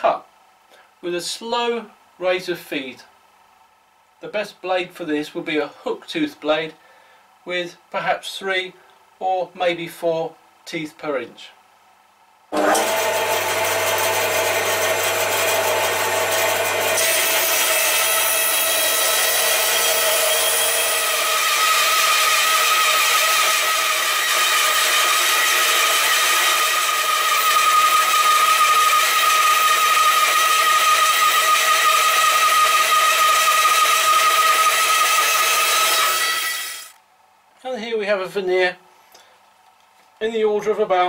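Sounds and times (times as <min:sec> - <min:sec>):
band saw cutting wood: 0:12.6 - 0:37.0.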